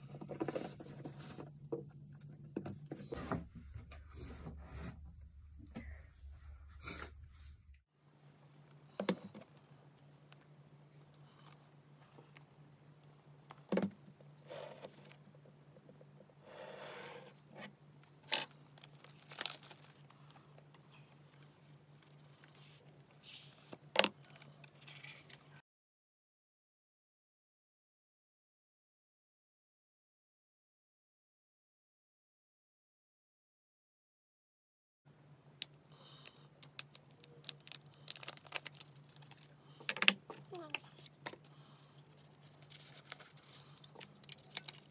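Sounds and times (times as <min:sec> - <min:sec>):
faint low hum: 0:00.0 - 0:25.6
packaging rustle: 0:18.8 - 0:20.4, 0:36.7 - 0:39.6, 0:41.8 - 0:44.9
seal tearing: 0:36.6 - 0:39.5.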